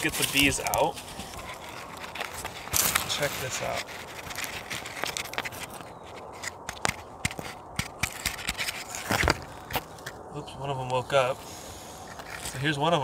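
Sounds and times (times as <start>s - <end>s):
package handling scrapes and clicks: 0.0s - 10.2s, 12.0s - 12.6s
package rustle: 0.0s - 10.2s.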